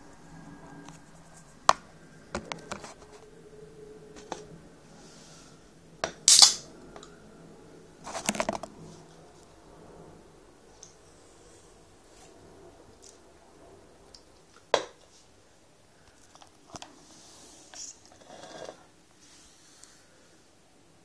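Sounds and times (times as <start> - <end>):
can ring-pull cracking open: 6.3 - 6.6.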